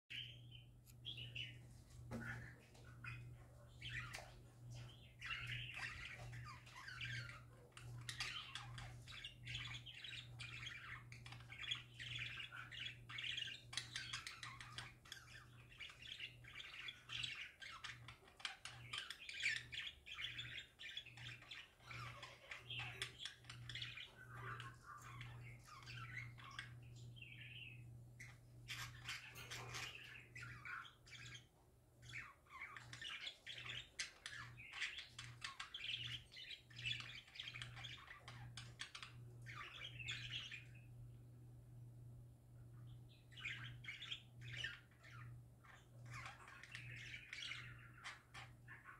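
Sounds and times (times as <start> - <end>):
budgerigars chattering and warbling: 0.1 - 41.0, 42.9 - 48.9
low steady hum: 0.1 - 48.9.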